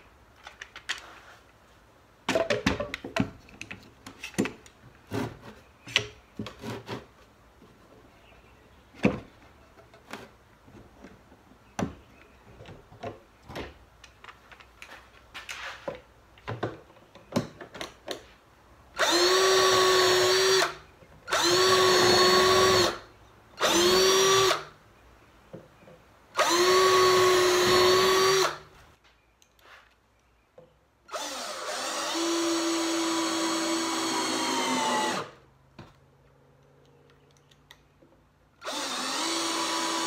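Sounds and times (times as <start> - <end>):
power drill drilling wood: 19.0 - 23.0, 23.6 - 24.7, 26.4 - 28.6, 31.1 - 35.4, 38.6 - 40.0.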